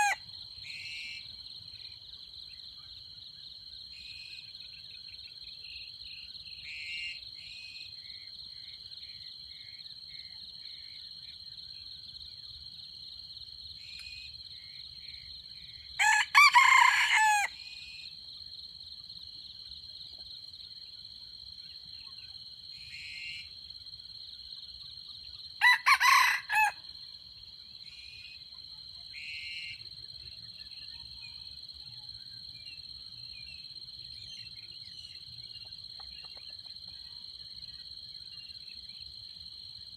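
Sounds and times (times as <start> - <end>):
rooster crowing: 0.0 - 0.2, 16.0 - 17.6, 25.6 - 26.8
faint chirps: 27.9 - 39.2.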